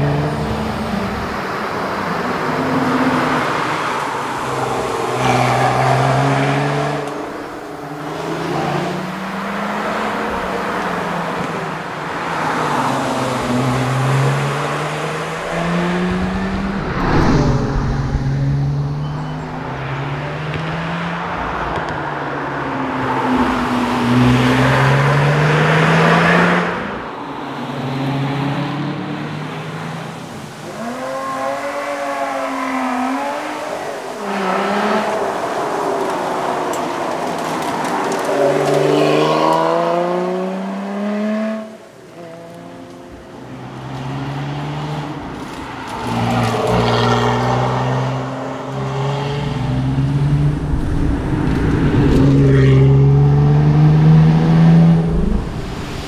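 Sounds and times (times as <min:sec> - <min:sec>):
car engine revving through gears: 0:30.5 - 0:43.0, 0:45.9 - 0:56.0.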